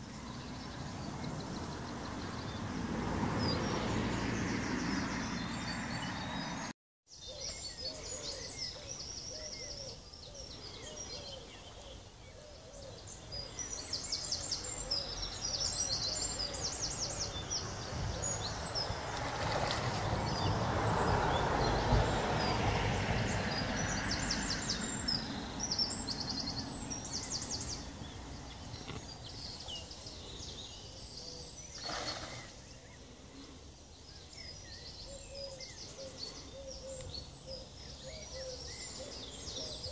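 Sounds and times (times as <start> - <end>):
birds singing: 0.0 - 39.9
fish splashing in water: 19.0 - 21.3, 31.8 - 32.6.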